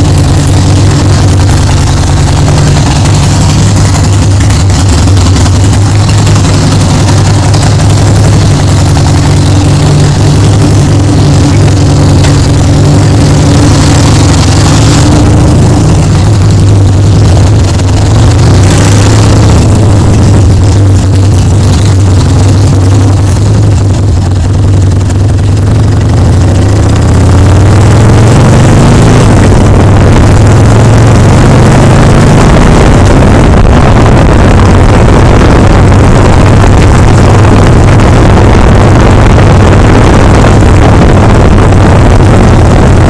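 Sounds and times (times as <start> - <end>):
motorcycle engine running: 0.0 - 43.0
wind noise on microphone: 32.4 - 43.0.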